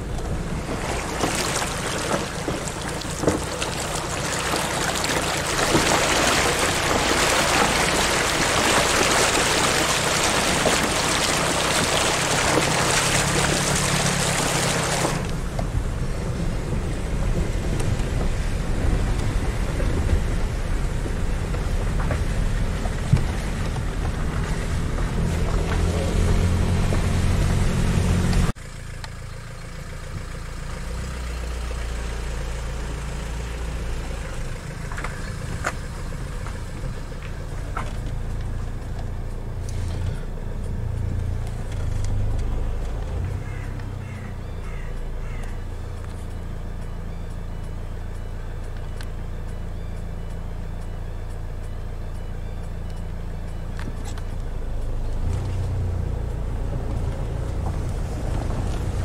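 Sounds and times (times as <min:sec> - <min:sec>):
low rumble: 0:00.0 - 0:28.6
vehicle engine running under load: 0:00.0 - 0:59.0.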